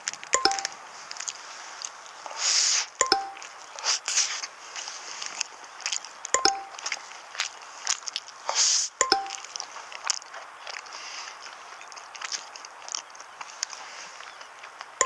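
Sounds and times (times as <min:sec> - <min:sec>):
two-note electronic blip: 0:00.4 - 0:00.7, 0:03.0 - 0:03.4, 0:06.4 - 0:06.8, 0:09.0 - 0:09.4.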